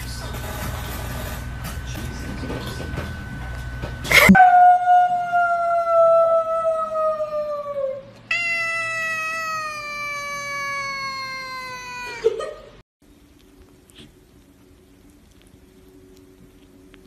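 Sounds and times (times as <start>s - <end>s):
cat meowing: 8.3s - 12.3s.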